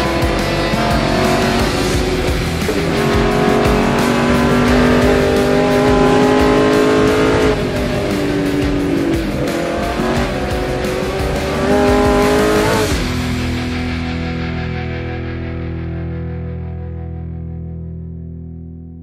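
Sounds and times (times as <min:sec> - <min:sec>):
racing engine at high revs: 0:00.0 - 0:13.5.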